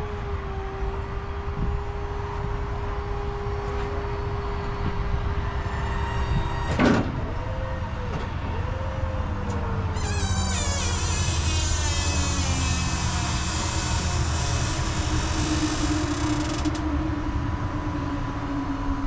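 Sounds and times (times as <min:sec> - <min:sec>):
hydraulic pump whining: 0:09.3 - 0:17.2.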